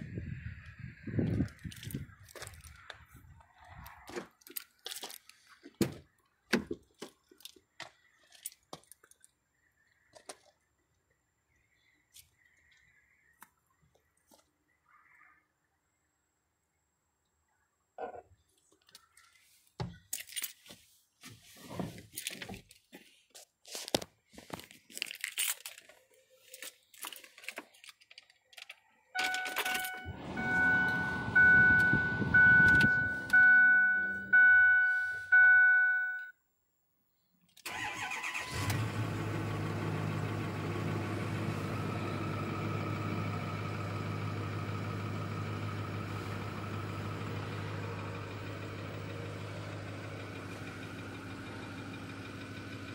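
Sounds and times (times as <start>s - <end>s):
handling clicks and rustles: 1.3s - 9.4s, 18.6s - 31.0s
dashboard warning chime dinging: 29.2s - 36.4s
diesel engine idling: 29.3s - 36.0s, 37.7s - 52.9s.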